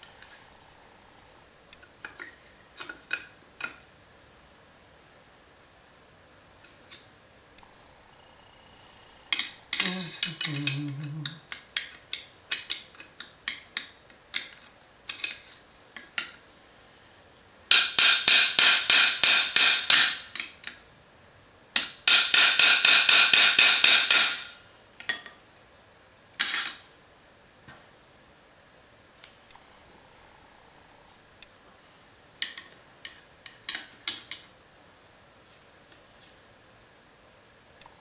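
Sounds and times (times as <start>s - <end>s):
hammer tapping metal part: 17.7s - 20.2s, 21.8s - 24.5s.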